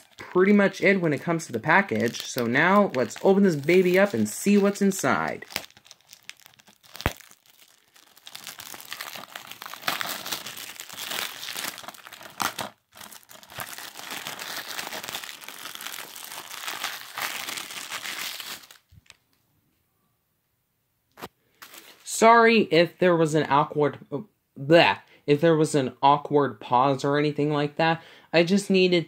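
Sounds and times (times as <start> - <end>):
cellophane crinkling: 0.0 - 19.3, 21.6 - 22.1.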